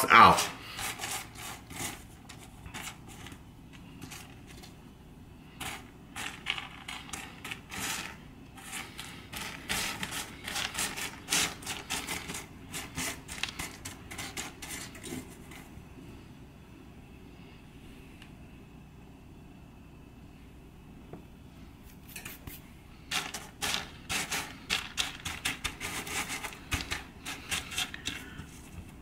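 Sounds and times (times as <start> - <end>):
dry beans clicking and scraping: 0.0 - 15.8, 21.9 - 29.0.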